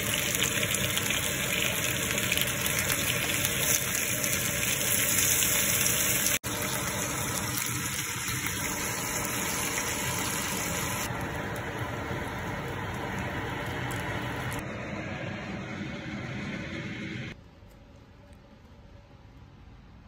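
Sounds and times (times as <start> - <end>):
oil sizzling in a frying pan: 0.0 - 14.6.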